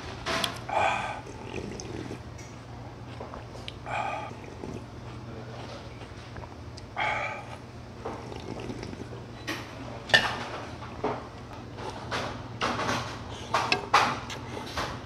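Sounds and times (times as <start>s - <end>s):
noodles being slurped: 1.2s - 2.2s, 8.1s - 9.1s.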